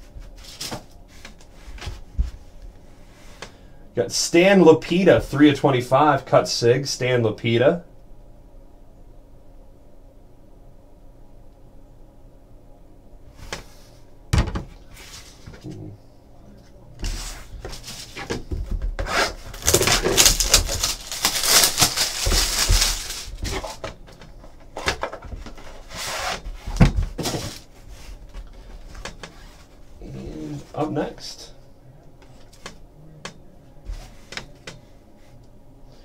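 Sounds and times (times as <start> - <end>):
plastic wrapping crinkling: 19.4 - 23.8.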